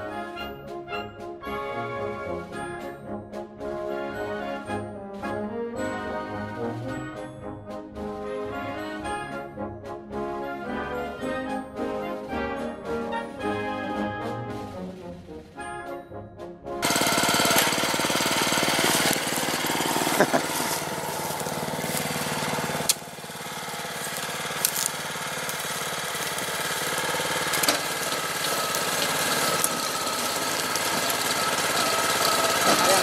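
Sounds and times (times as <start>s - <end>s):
tiller engine running: 16.8s - 33.0s
tines churning soil: 16.8s - 33.0s.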